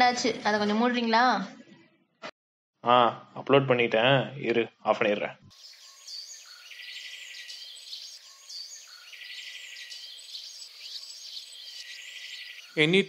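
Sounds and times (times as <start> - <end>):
birds chirping and calling: 5.5 - 13.0.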